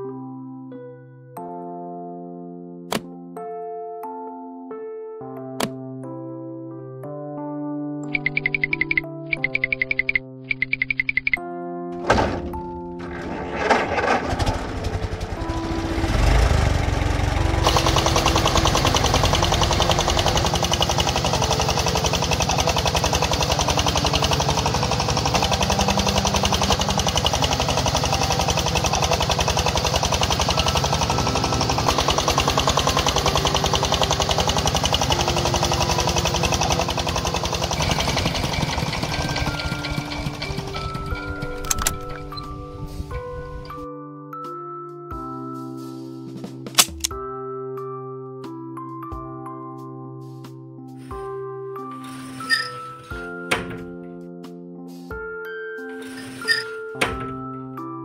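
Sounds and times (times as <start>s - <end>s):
light background music: 0.0s - 58.0s
tractor engine chugging: 13.0s - 43.7s.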